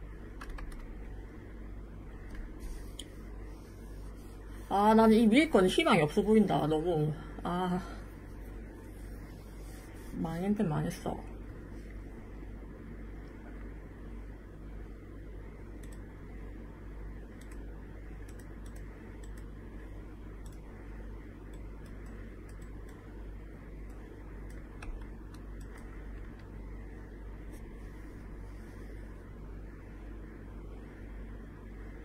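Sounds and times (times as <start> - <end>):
steady low hum: 0.0 - 32.0
computer keys clicking: 0.4 - 0.9, 15.8 - 16.1, 17.4 - 19.5, 20.4 - 20.7, 21.5 - 23.0, 23.8 - 26.5.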